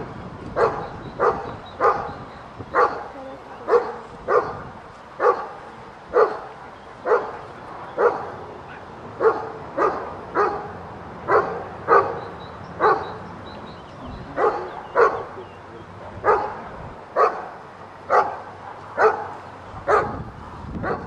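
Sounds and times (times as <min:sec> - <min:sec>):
dog barking sharply: 0:16.3 - 0:16.6, 0:18.1 - 0:19.3.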